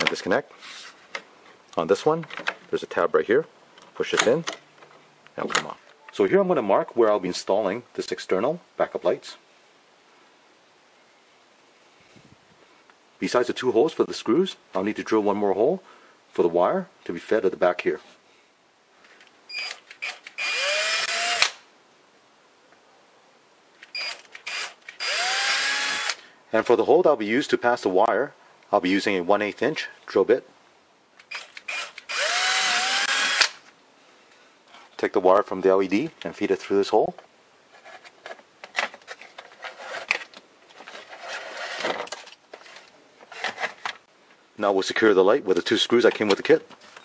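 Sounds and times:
cordless drill whining: 19.5 - 21.6, 24.0 - 26.2, 31.3 - 33.6
drill trigger blips: 31.3 - 33.6.

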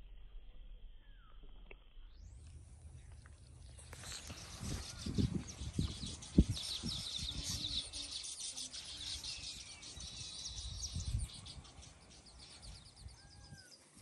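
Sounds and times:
small birds chirping: 2.0 - 14.0.

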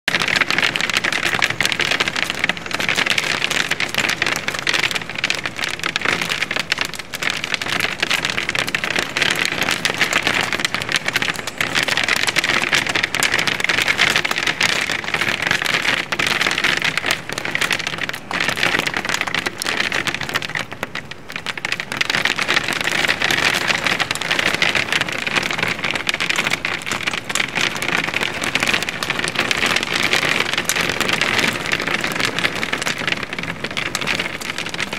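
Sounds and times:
hail and rain on a window: 0.1 - 34.9.

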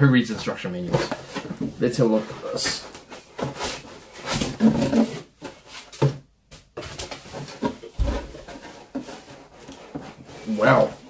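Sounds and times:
cardboard packaging rustling: 0.3 - 11.0.

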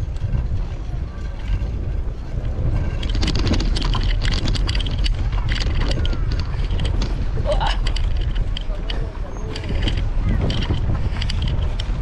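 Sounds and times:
bicycle rattling on cobblestones: 0.0 - 12.0
wind buffeting microphone: 0.0 - 12.0.

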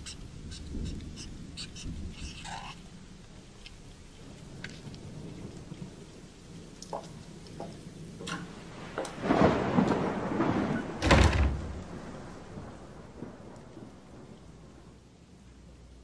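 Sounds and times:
rain: 0.0 - 16.0
thunder rumble: 0.0 - 16.0
loud low thunder crack: 7.9 - 14.9.

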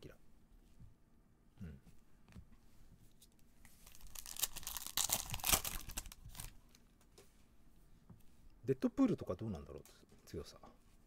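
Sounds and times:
foil wrapper tearing: 3.8 - 6.5.

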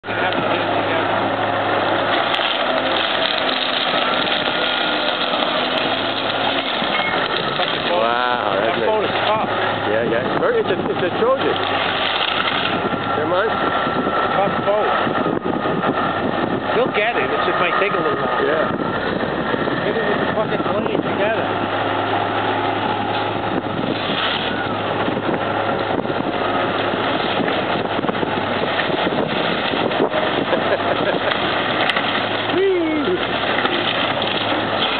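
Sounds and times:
heavy machine engine rumbling: 0.0 - 34.9
boat hull cracking: 1.9 - 9.8, 10.4 - 13.0, 22.7 - 34.9.

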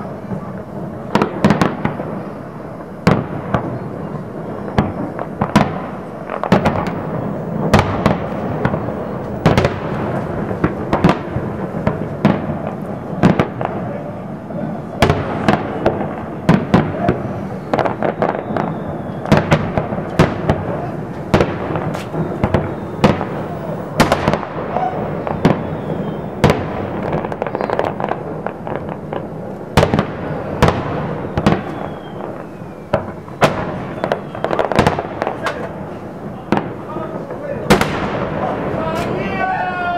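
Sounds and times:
fireworks bangs: 0.0 - 39.9.

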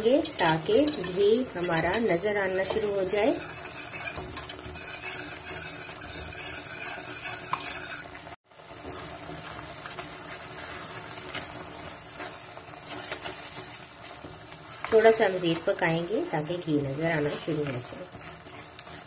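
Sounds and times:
whisk scraping and clinking pan: 0.0 - 9.0
spatula stirring: 0.0 - 16.1, 16.8 - 19.0
mixture sizzling in a pan: 0.0 - 19.0.

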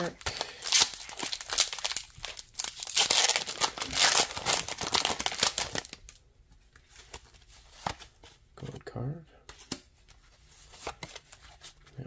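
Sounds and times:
foil wrapper crinkling and tearing: 0.0 - 6.2.

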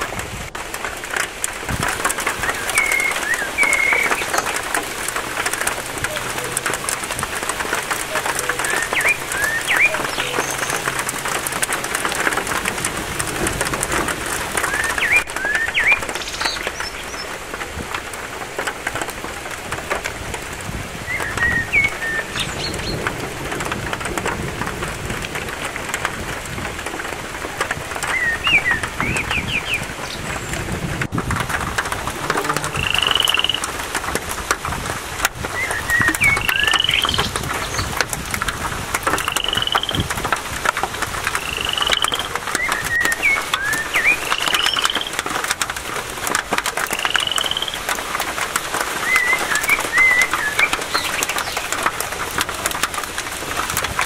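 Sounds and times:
rain falling on foliage: 0.0 - 54.0
birds whistling and chirping: 2.2 - 4.8, 8.0 - 11.1, 14.6 - 17.3, 21.0 - 23.0, 28.0 - 30.6, 32.2 - 33.7, 35.5 - 38.0, 39.2 - 40.0, 41.4 - 45.4, 46.8 - 47.9, 49.0 - 51.8.

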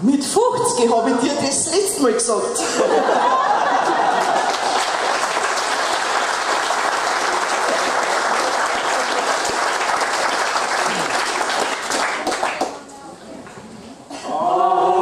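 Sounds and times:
audience applauding: 3.3 - 12.9.

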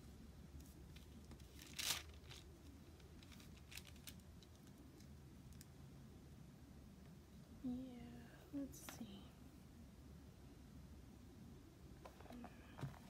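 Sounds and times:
paper crinkle: 0.6 - 5.1.

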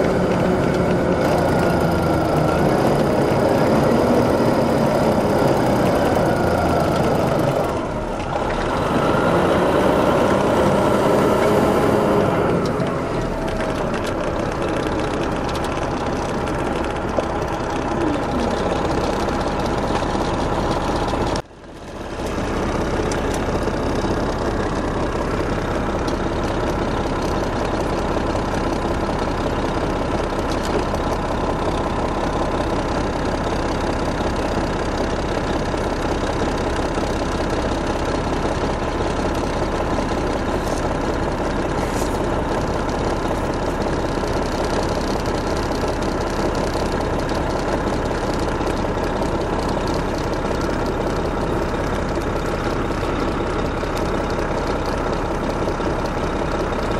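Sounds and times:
diesel engine idling: 0.0 - 56.9.

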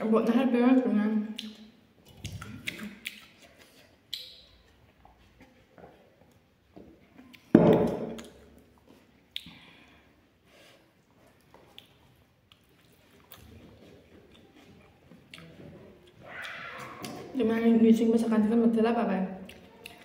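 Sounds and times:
person eating: 1.4 - 4.8, 8.1 - 17.4, 19.4 - 20.0.

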